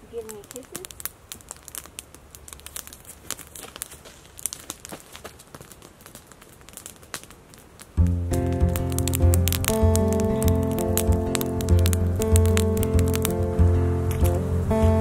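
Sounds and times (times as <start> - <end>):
crinkling and crackling clicks: 0.0 - 15.0
background music with steady beat: 8.0 - 15.0.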